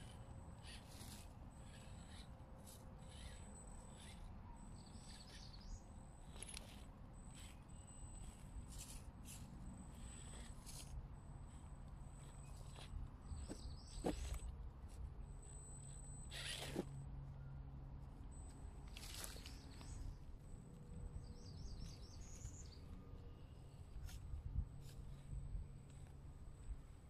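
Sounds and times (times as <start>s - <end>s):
small bird chirping: 0.0s - 10.8s, 11.4s - 14.5s, 21.2s - 23.9s
low steady hum: 0.0s - 27.0s.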